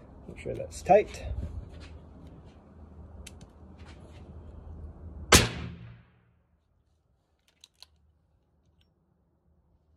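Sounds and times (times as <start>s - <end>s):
suppressed pistol shot: 5.3s - 6.2s.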